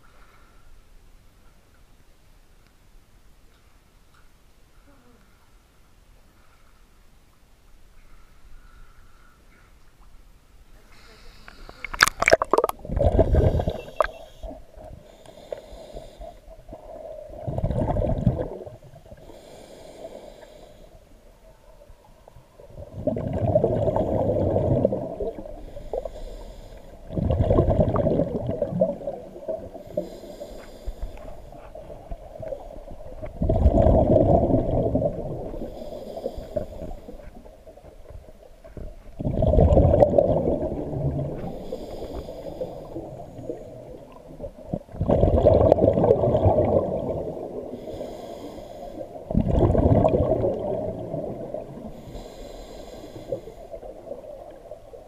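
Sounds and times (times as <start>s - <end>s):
gurgling exhaled bubbles: 11.8s - 14.6s, 16.6s - 19.2s, 22.6s - 26.2s, 27.0s - 30.0s, 32.0s - 37.0s, 38.8s - 47.9s, 49.2s - 52.4s
regulator inhalation hiss: 13.4s - 16.5s, 19.2s - 21.0s, 25.6s - 27.0s, 29.8s - 31.5s, 35.6s - 37.4s, 41.4s - 43.6s, 47.7s - 49.2s, 51.9s - 54.0s.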